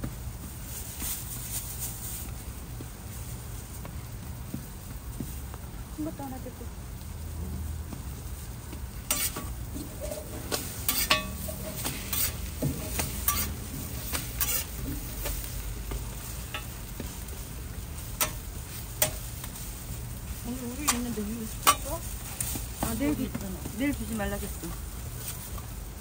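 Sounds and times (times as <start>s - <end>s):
food sizzling on a griddle: 0.0s - 26.0s
utensils clicking and scraping: 9.1s - 19.8s, 20.4s - 23.4s.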